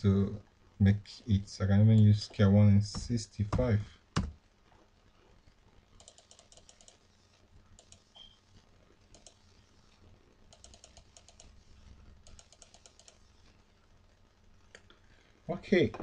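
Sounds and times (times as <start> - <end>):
computer mouse clicks: 6.0 - 7.0, 7.8 - 8.4, 9.1 - 9.4, 10.5 - 11.6, 12.2 - 13.3.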